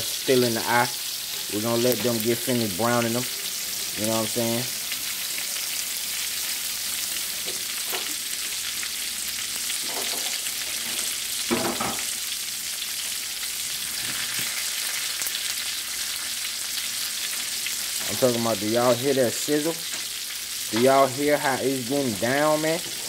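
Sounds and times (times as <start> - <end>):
meat sizzling in oil: 0.0 - 23.0.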